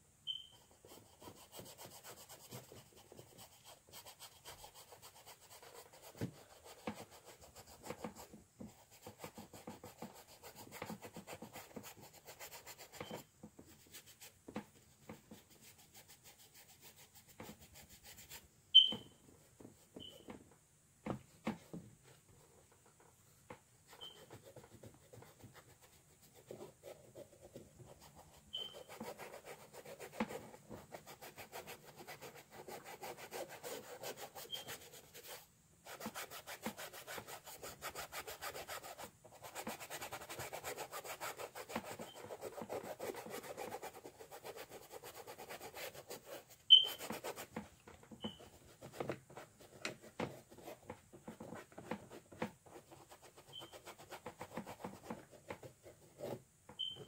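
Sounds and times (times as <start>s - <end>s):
paintbrush scrubbing on canvas: 23.9s - 56.9s.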